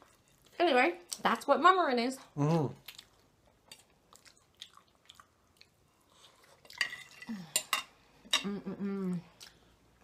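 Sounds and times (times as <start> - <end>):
person humming: 8.4 - 9.3.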